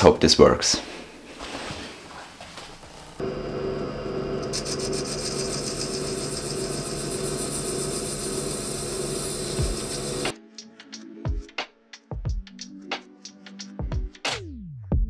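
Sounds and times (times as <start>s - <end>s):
lathe motor hum: 3.2s - 10.3s
lathe tool scraping metal: 3.2s - 10.3s.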